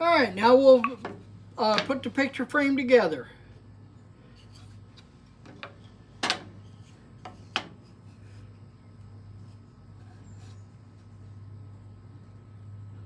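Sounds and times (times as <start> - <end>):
steady low hum: 0.0 - 13.0
wood knocking on metal table: 0.8 - 2.0, 5.4 - 6.6, 7.2 - 7.8.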